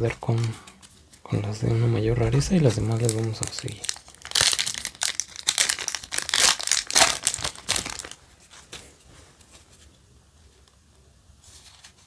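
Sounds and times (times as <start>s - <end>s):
foil pack crinkling: 2.3s - 8.2s
soft handling sounds: 8.3s - 12.0s.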